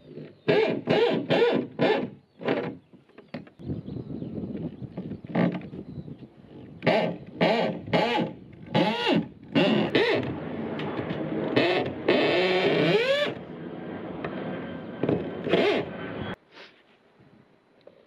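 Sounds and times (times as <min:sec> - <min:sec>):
electric drill boring into wood: 0:06.8 - 0:13.4, 0:15.0 - 0:15.9.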